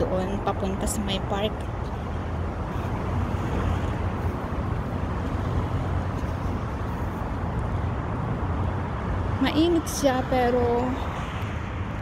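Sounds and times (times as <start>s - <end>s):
city street traffic: 0.0s - 12.0s.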